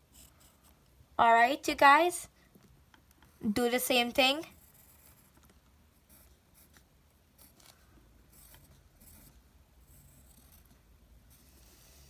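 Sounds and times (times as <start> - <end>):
pencil scratching on paper: 0.0 - 0.8, 4.2 - 12.0.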